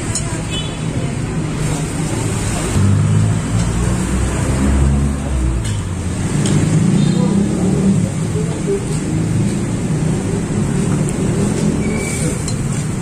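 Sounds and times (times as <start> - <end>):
vehicle engine passing: 2.1 - 13.0.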